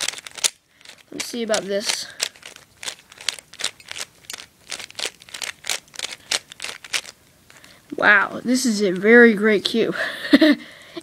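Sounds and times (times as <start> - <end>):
puzzle cube plastic clicks: 0.0 - 8.0.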